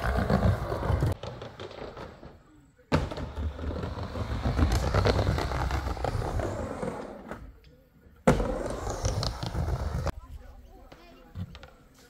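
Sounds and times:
skateboard wheels rolling: 0:00.0 - 0:07.6, 0:08.2 - 0:10.2.

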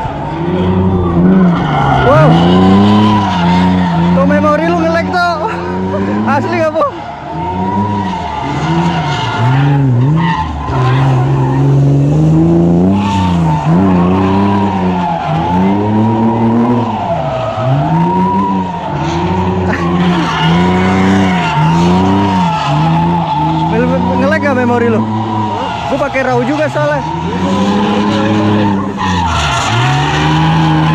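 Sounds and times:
car engine revving: 0:00.0 - 0:30.9
tyres squealing: 0:00.0 - 0:30.9.

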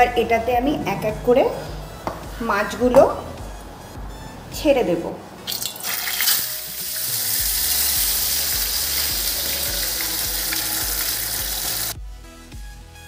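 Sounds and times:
fish sizzling in hot oil: 0:05.5 - 0:12.0.

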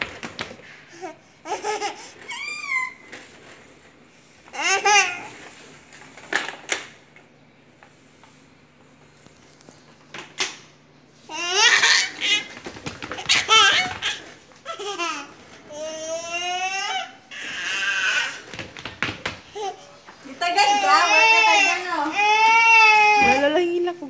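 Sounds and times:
toddler laughing: 0:01.4 - 0:03.0, 0:11.3 - 0:12.6.

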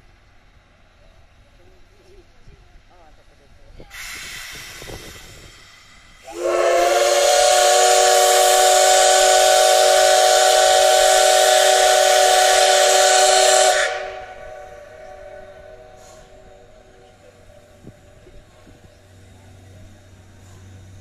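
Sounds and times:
steam locomotive whistle blast: 0:06.2 - 0:16.8.

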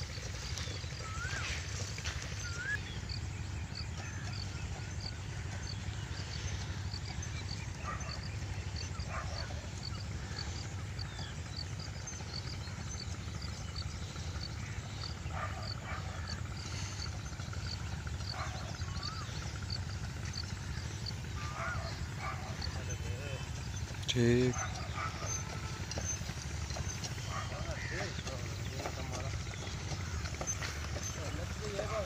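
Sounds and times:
bird calls: 0:00.0 - 0:32.0.

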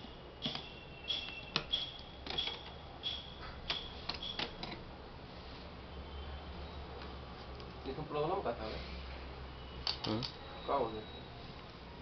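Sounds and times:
sharp clicks and taps of parts: 0:00.4 - 0:04.8.

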